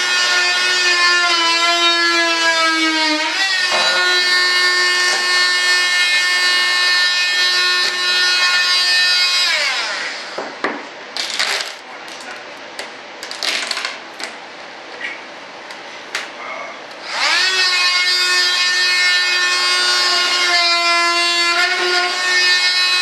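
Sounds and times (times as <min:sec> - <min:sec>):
rotary tool high whine: 0:00.0 - 0:10.5, 0:17.0 - 0:23.0.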